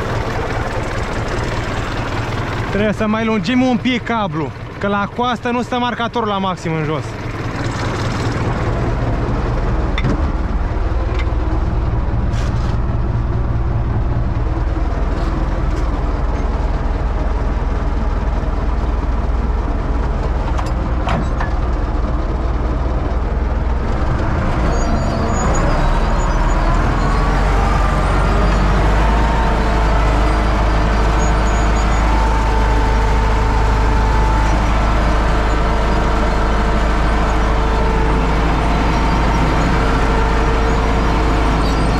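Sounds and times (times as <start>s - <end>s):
tractor diesel engine running: 0.0s - 41.9s
rising whine: 21.6s - 41.9s.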